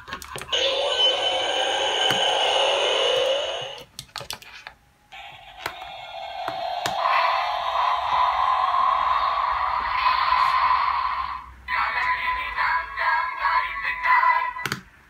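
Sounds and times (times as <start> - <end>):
electronic toy sound effects: 0.5 - 3.9, 5.2 - 12.6.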